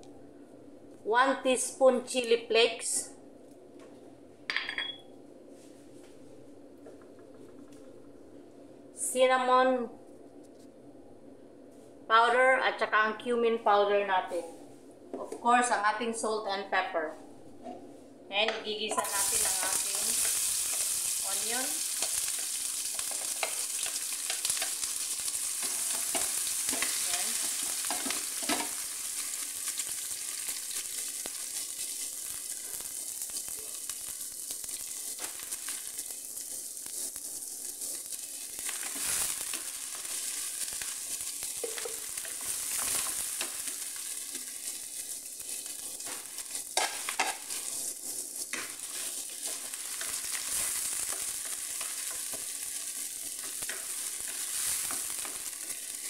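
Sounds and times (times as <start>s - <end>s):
onions sizzling in oil: 18.8s - 56.0s
spatula scraping a pan: 41.0s - 56.0s.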